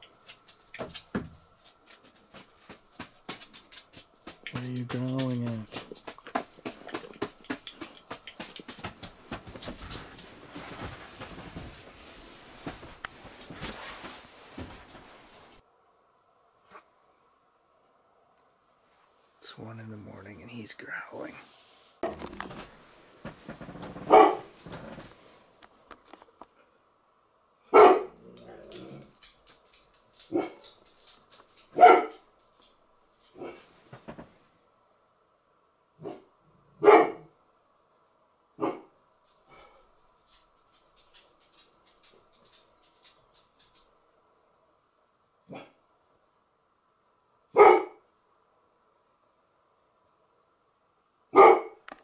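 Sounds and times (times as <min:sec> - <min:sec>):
bedding rustling: 0:00.0 - 0:15.6, 0:21.2 - 0:26.3, 0:28.4 - 0:34.6
handheld camera clicks and scuffs: 0:01.7 - 0:11.6
dog barking: 0:24.1 - 0:24.5, 0:27.7 - 0:28.2, 0:30.3 - 0:30.6, 0:31.8 - 0:32.2, 0:33.4 - 0:33.6, 0:36.0 - 0:37.3, 0:38.6 - 0:38.9, 0:45.5 - 0:45.8, 0:47.5 - 0:48.0, 0:51.3 - 0:51.8
dog growling low: 0:28.2 - 0:29.2.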